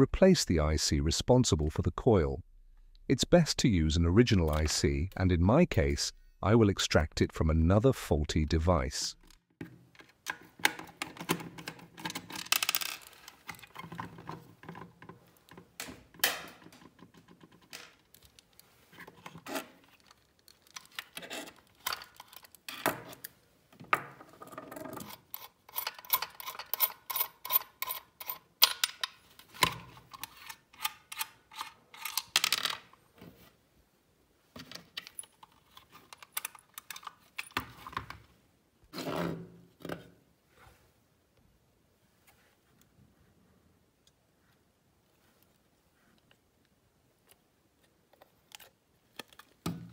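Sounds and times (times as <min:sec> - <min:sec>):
screwdriver clicks and scrapes: 0:25.0 - 0:32.3.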